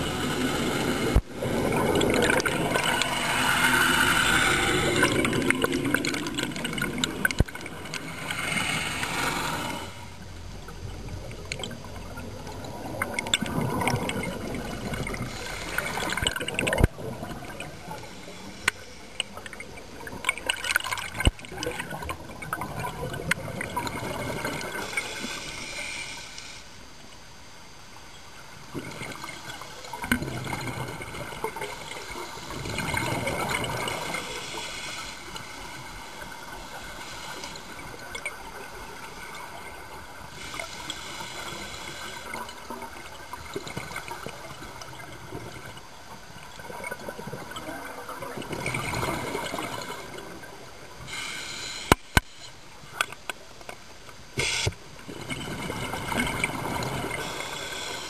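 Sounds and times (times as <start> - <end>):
exhaled bubbles rushing: 0.0 - 25.2, 28.7 - 34.5, 55.1 - 58.0
diver breathing through regulator: 51.0 - 52.4, 56.9 - 58.0.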